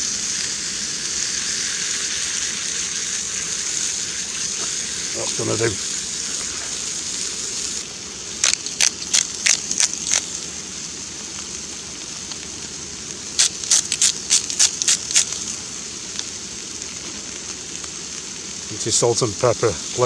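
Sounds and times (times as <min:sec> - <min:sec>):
steak sizzling in a frying pan: 0:00.0 - 0:20.0
grinder crunching: 0:08.4 - 0:10.3, 0:13.4 - 0:15.4.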